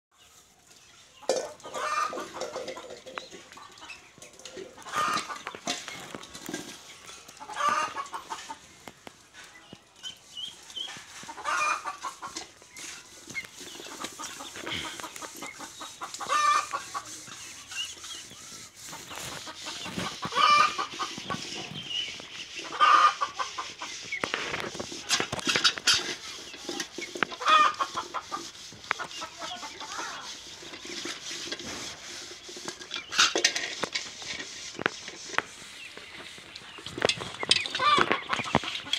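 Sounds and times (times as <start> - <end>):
poultry calling: 1.2 - 6.2, 7.1 - 8.7, 10.9 - 33.3, 37.4 - 38.9.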